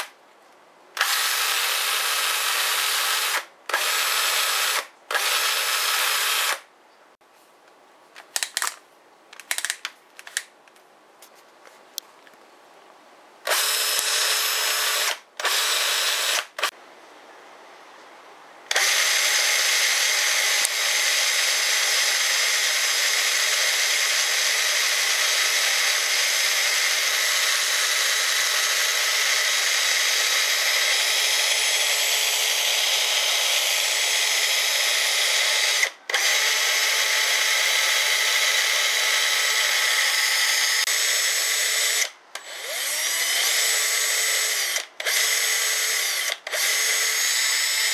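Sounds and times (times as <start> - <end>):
cordless drill whining: 1.0 - 6.6, 13.4 - 16.7, 18.7 - 47.9.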